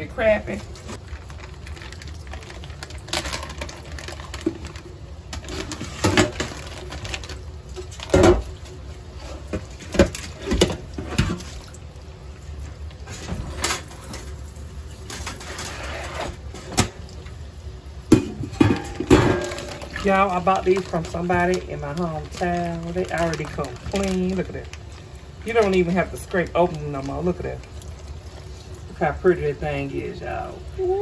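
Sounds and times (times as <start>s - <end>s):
plastic bag rustling: 0.5s - 11.7s, 13.0s - 16.7s, 18.4s - 28.7s
metal pan clattering: 18.1s - 20.1s.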